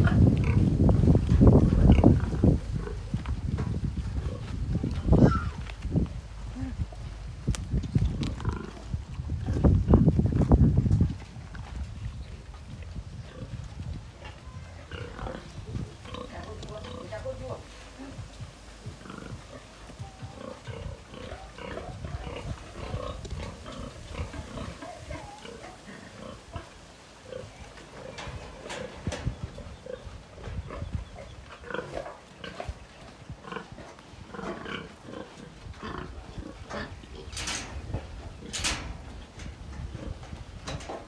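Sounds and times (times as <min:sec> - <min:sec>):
pigs grunting: 0:01.6 - 0:03.2, 0:08.2 - 0:10.0, 0:14.6 - 0:39.0.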